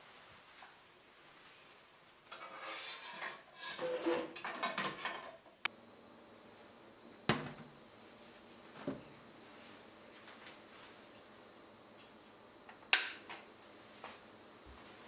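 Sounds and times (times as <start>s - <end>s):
dishes and utensils clattering: 2.3s - 5.4s.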